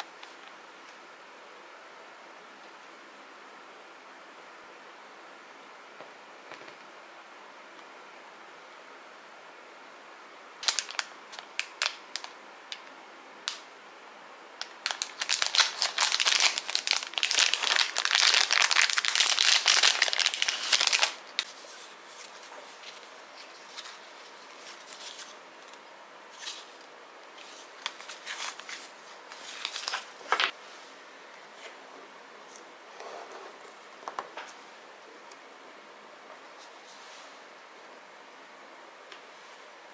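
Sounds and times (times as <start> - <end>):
plastic packaging crinkling: 10.6 - 12.8, 14.6 - 25.4, 27.4 - 30.6.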